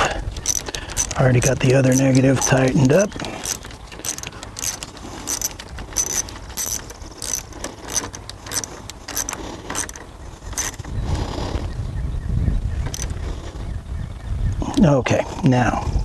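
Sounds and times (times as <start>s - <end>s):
socket ratchet clicking: 0.0s - 10.9s, 12.9s - 13.2s.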